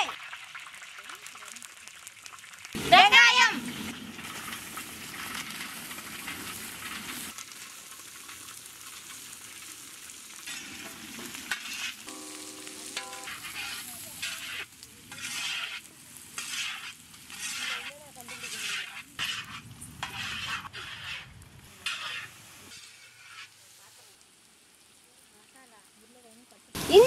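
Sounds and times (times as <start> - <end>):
leaves sizzling in hot oil: 0.0 - 27.0
spoon scraping a pan: 10.5 - 23.6.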